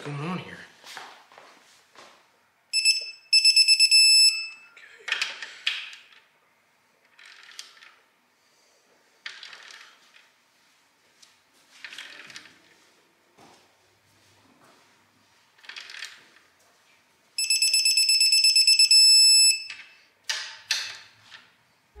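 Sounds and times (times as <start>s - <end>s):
torque wrench beeping: 2.8s - 4.6s, 17.4s - 19.9s.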